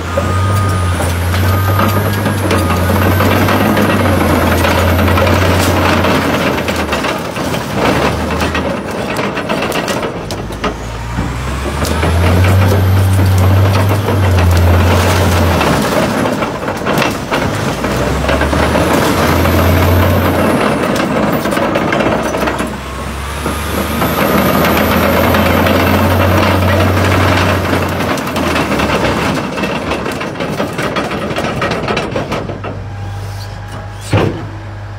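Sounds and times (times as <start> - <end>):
metal cracking and crunching: 0.0 - 32.8
crawler tracks clanking: 0.0 - 34.7
bulldozer diesel engine: 0.0 - 34.9.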